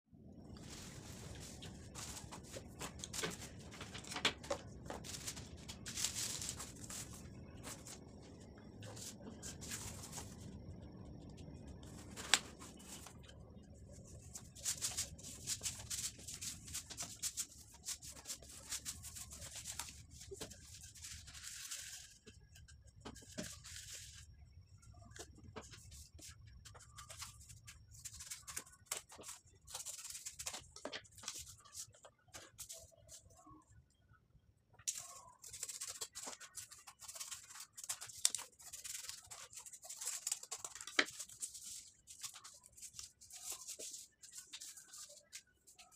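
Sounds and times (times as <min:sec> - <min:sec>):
cardboard and bottles rustling: 0:00.5 - 0:08.2.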